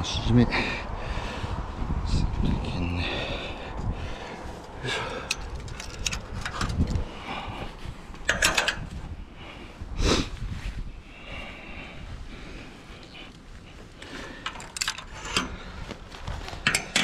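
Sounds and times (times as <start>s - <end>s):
heavy breathing: 0.4s - 2.0s, 2.8s - 17.0s
metallic clicks and clinks: 5.1s - 6.9s, 8.3s - 8.8s, 14.4s - 15.6s, 16.6s - 17.0s.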